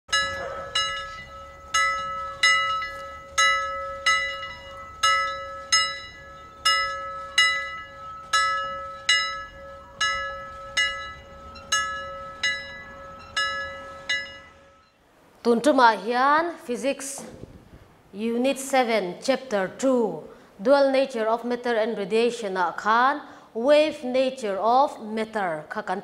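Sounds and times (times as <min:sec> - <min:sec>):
bell-like chimes: 0:00.1 - 0:15.0
steady held tone: 0:00.1 - 0:15.0.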